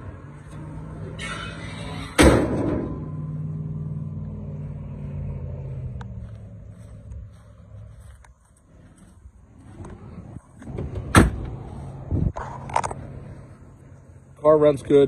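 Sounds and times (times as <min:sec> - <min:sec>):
car hood slamming shut: 0:02.2 - 0:02.9, 0:11.1 - 0:11.5.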